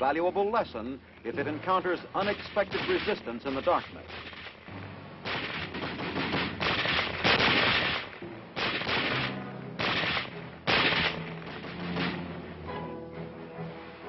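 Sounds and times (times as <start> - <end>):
machine-gun fire bursts: 5.2 - 12.2
low orchestral music: 8.2 - 14.0.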